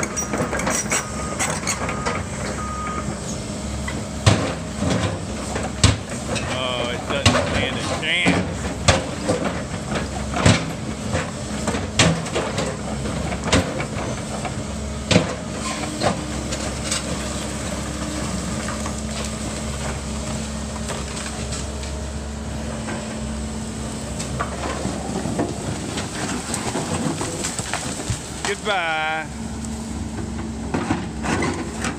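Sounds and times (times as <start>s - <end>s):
excavator engine running: 0.0s - 31.9s.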